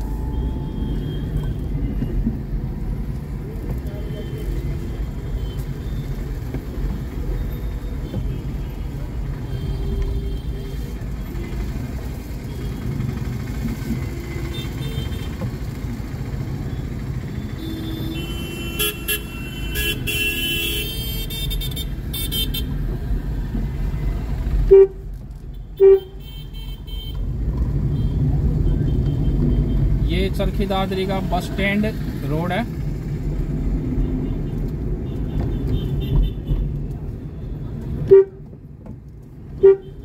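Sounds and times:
vehicle engine and road rumble: 0.0 - 40.0
car horns honking: 17.5 - 22.8, 24.6 - 27.3, 38.0 - 38.5, 39.5 - 40.0.

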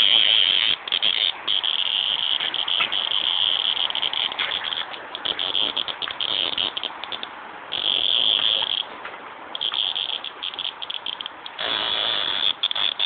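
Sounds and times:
cicada buzzing: 0.0 - 13.0.

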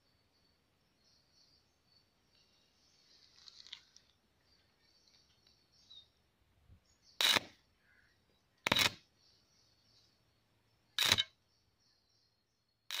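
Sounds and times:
electric arcing bursts: 7.2 - 7.5, 11.0 - 11.3.

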